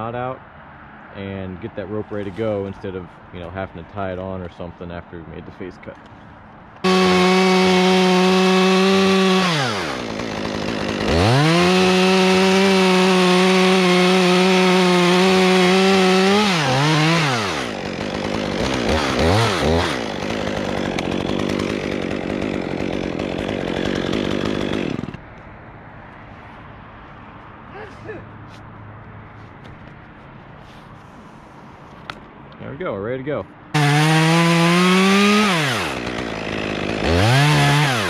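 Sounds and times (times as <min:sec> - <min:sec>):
chainsaw cutting wood: 0:06.8 - 0:25.3, 0:33.7 - 0:38.0.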